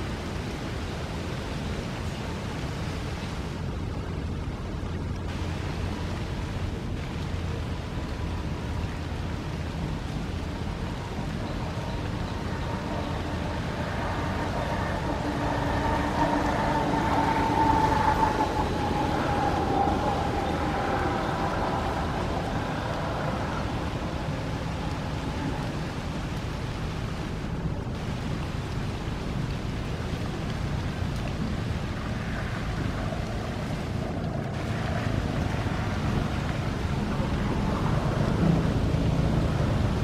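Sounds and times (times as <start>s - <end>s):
distant traffic: 0.0s - 40.0s
wind: 0.0s - 40.0s
vehicle passing by: 11.6s - 26.0s, 32.0s - 40.0s.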